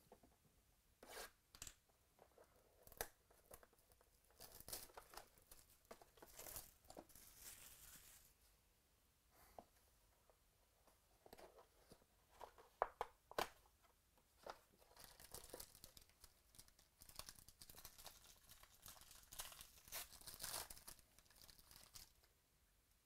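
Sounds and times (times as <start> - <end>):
foil pack crinkling: 6.2 - 8.3, 15.0 - 22.2.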